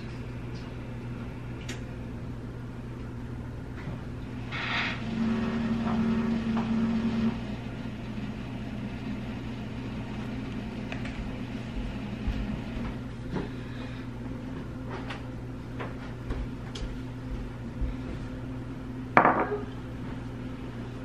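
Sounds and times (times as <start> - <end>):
steady low hum: 0.0 - 21.0
mug knocking on countertop: 19.2 - 19.7.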